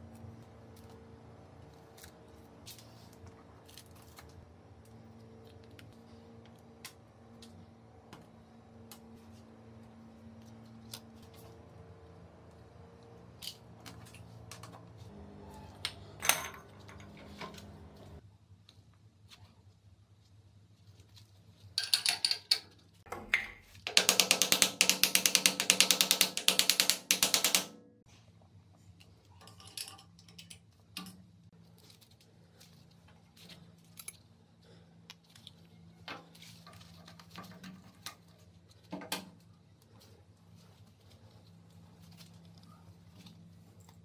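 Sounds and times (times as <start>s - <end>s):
metal parts clicking and tapping: 21.8s - 27.8s, 29.4s - 31.3s.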